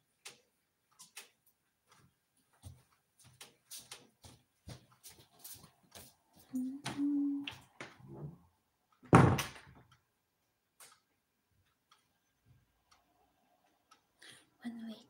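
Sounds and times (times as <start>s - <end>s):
loud door thunk: 9.0s - 9.8s.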